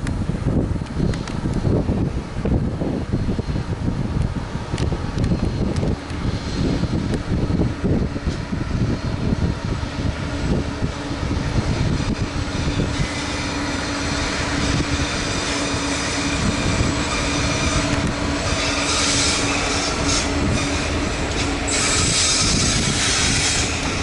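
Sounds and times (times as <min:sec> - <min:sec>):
diesel locomotive engine rumbling: 0:00.0 - 0:24.0
train wagons rolling past: 0:09.8 - 0:24.0
wheel squeal: 0:12.6 - 0:24.0.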